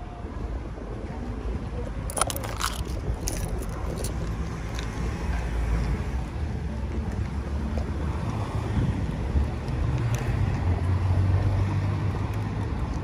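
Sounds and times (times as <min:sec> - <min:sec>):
traffic rumble: 0:00.0 - 0:13.0
wind on microphone: 0:08.0 - 0:10.8.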